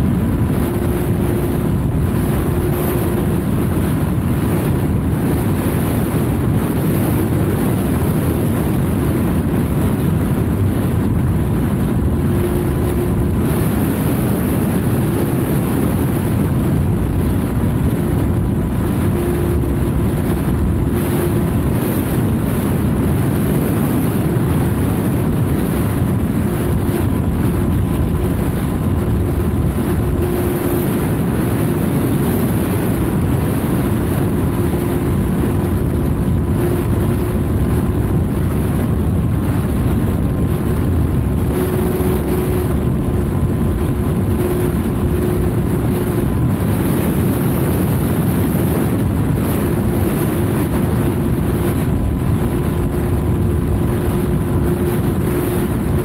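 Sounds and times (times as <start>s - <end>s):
wind rush on microphone: 0.0s - 56.0s.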